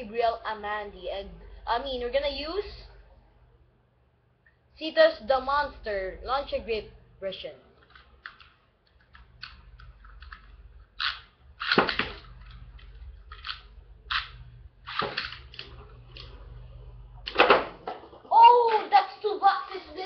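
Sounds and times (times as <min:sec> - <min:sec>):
sharp plastic clacks: 0:07.8 - 0:16.3.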